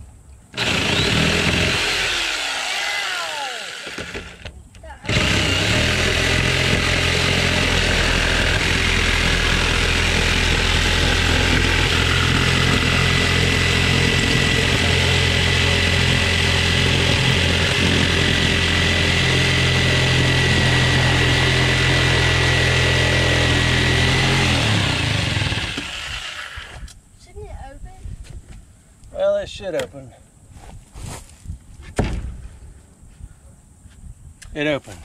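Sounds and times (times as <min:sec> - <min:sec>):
electric saw cutting wood: 0:00.5 - 0:26.9.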